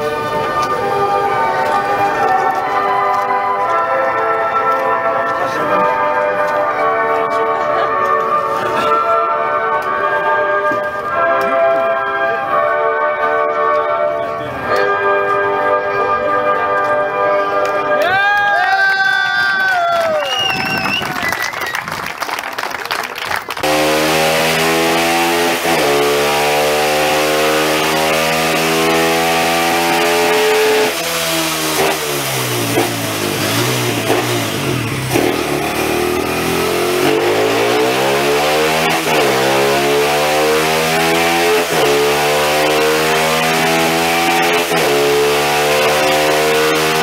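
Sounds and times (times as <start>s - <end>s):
motorcycle engine revving: 23.6s - 47.0s.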